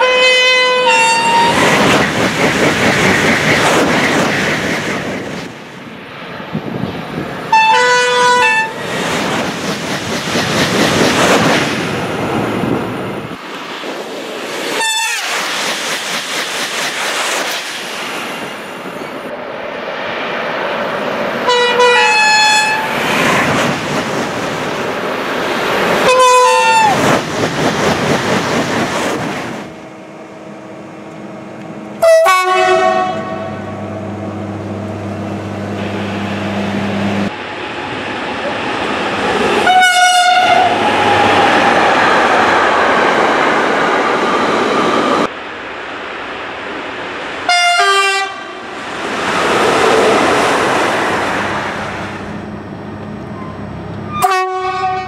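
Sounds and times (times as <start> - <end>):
train horn blasts: 0.0 - 1.6, 7.5 - 8.8, 14.8 - 15.3, 21.5 - 22.9, 26.0 - 27.0, 32.0 - 34.1, 39.6 - 40.8, 47.5 - 48.6, 54.1 - 55.0
trains rushing past: 0.0 - 55.0.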